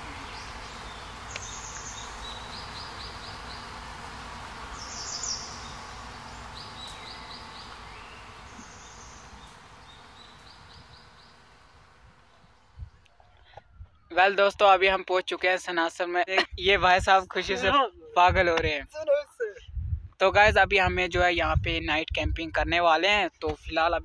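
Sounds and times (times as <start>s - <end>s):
steady hiss: 0.0s - 12.8s
high chirping trills: 0.0s - 14.2s.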